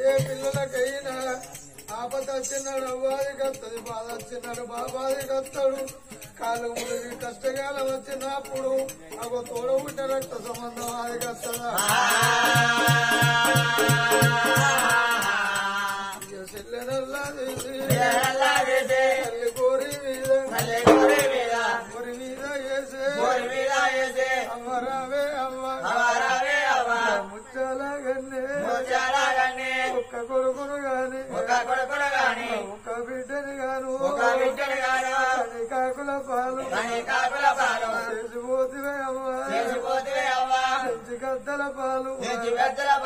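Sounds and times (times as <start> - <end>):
sharp strikes: 20.6 - 21.8.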